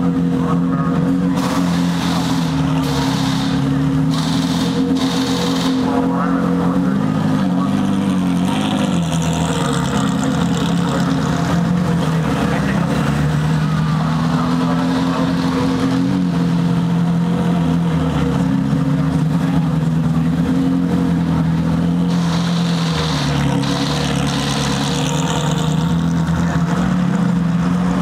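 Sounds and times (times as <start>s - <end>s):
race car engines idling: 0.0s - 28.0s.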